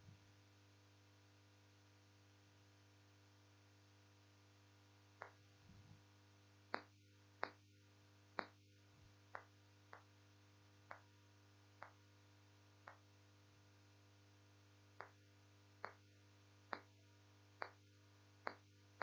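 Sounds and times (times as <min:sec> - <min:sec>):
low electrical hum: 0:00.0 - 0:19.0
marker tapping on whiteboard: 0:17.6 - 0:17.8.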